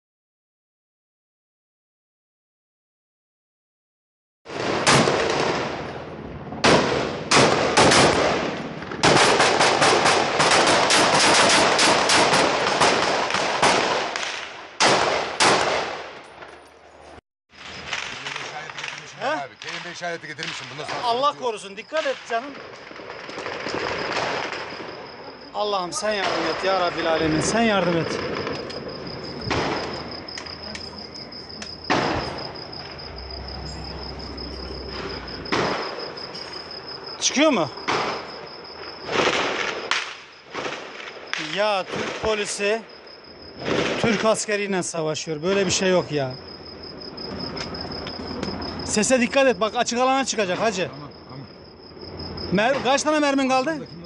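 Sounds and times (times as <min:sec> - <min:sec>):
gunshots with echo: 0:04.5 - 0:05.9, 0:06.6 - 0:16.2, 0:34.9 - 0:36.3, 0:37.8 - 0:38.4
crickets chirping: 0:04.5 - 0:54.0
automatic gunfire bursts: 0:06.6 - 0:16.0.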